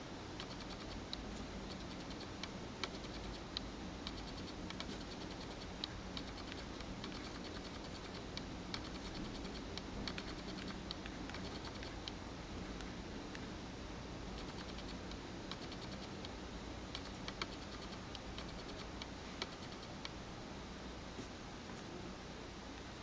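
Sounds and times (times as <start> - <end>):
faint steady hum: 0.0 - 23.0
touchscreen typing clicks: 0.4 - 12.2, 14.4 - 20.2.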